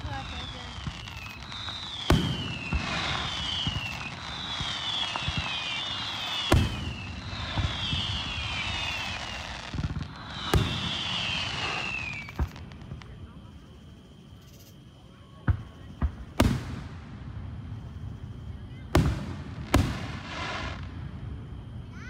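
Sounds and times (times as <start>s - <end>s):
falling high whistles: 0.3s - 12.6s.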